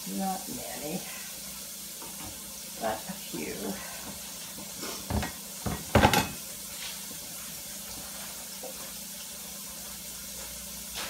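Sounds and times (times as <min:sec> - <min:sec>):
meat sizzling in a pan: 0:00.0 - 0:11.0
kitchenware knocks and clatter: 0:05.0 - 0:06.4.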